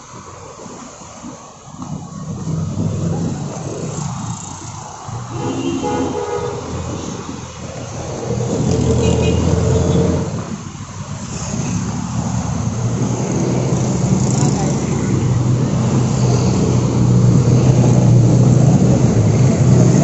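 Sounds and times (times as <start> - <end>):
roadside traffic: 0.0 - 20.0
vehicle passing: 2.2 - 20.0
vehicle horn: 5.3 - 6.7, 8.8 - 10.3.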